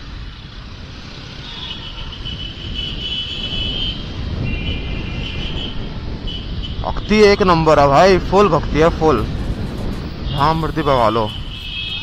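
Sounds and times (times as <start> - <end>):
motorcycle engine: 0.0 - 6.7
wind rumble on microphone: 0.0 - 12.0.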